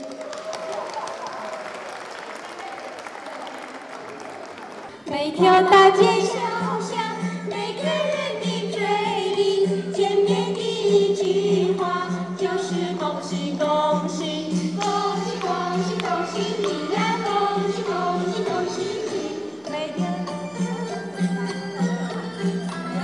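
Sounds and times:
choir singing: 5.2 - 23.0.

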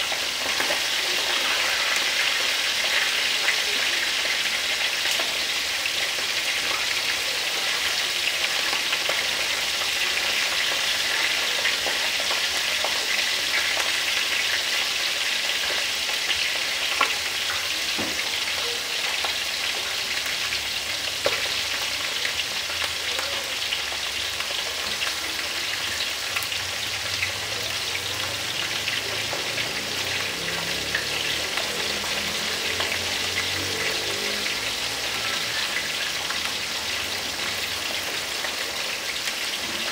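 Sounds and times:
fish frying in hot oil: 0.0 - 39.9.

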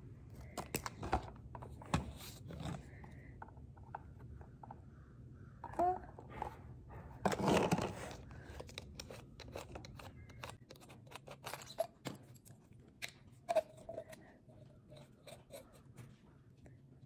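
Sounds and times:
small clicks and scrapes: 7.3 - 16.0.

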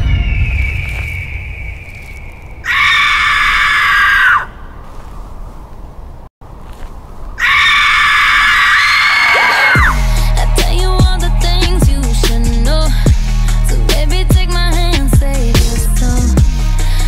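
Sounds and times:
pop song with high voice: 9.3 - 17.0.

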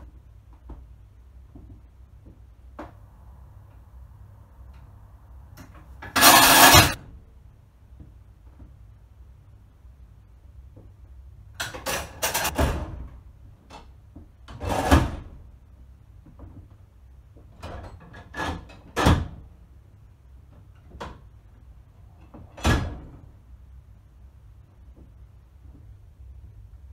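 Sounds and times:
metal levers clunking and rattling: 6.0 - 7.0.

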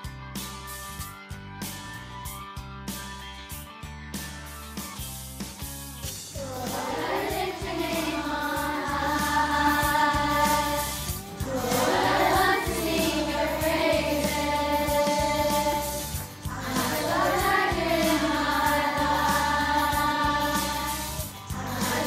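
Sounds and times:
backing track with bass and beat: 0.0 - 22.0
children singing: 6.4 - 22.0.

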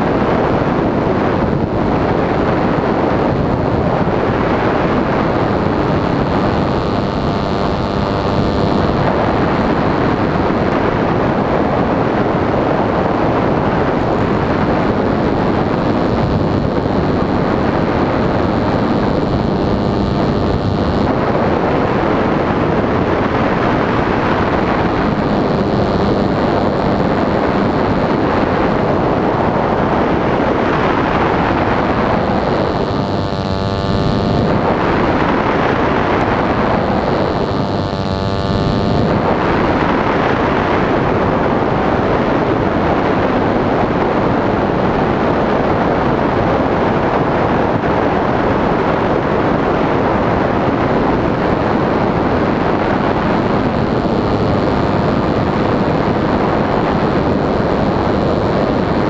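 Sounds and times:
model airplane engine: 0.0 - 41.7
wind rush on microphone: 0.0 - 59.0.

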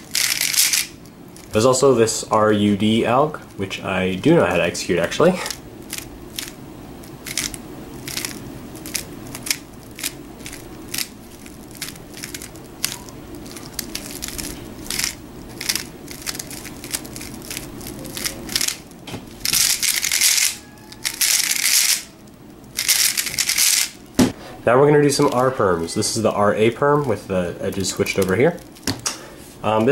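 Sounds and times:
rapid cube turning: 0.0 - 1.6, 5.4 - 24.0
speed cube layer turns clicking: 0.0 - 1.6, 5.4 - 24.0, 27.0 - 28.9.

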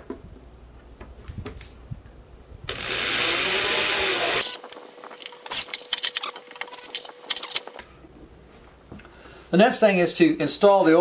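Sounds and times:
power drill driving screw: 2.7 - 4.6.

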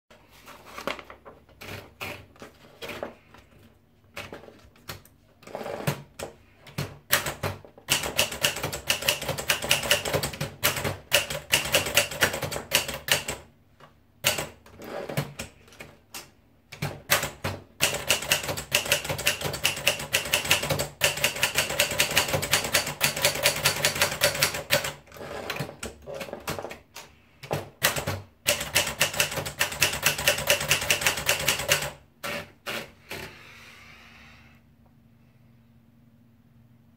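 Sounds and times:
typewriter clacking: 6.8 - 13.4, 14.2 - 15.5, 16.8 - 26.7, 27.5 - 32.0
typewriter carriage clicks: 14.2 - 26.8, 27.5 - 32.8.

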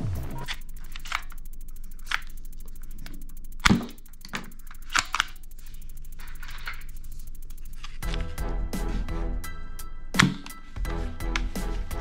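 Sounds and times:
plastic toy guns clicking: 0.4 - 8.2.

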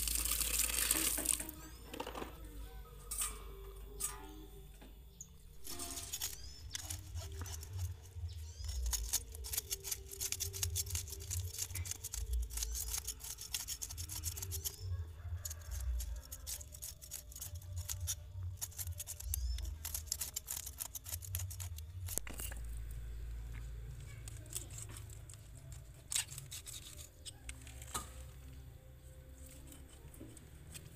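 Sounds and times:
knife scraping fish scales: 5.6 - 22.6, 24.3 - 28.0.

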